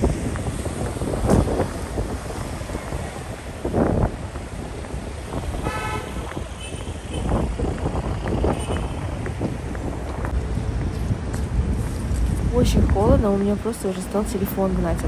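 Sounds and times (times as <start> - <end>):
street traffic: 0.0 - 15.0
wind buffeting microphone: 0.0 - 15.0
vehicle horn toot: 5.6 - 7.4, 8.4 - 9.0.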